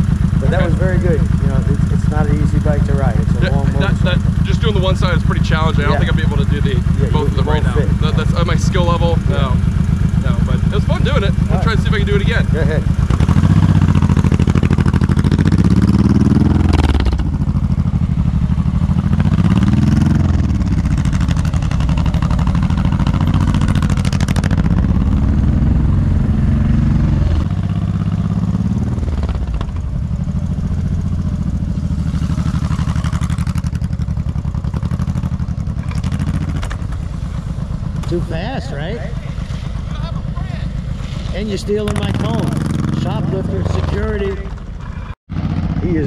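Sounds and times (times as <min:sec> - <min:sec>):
motorcycle engine idling: 0:00.0 - 0:46.0
motorcycle engine revving: 0:00.0 - 0:46.0.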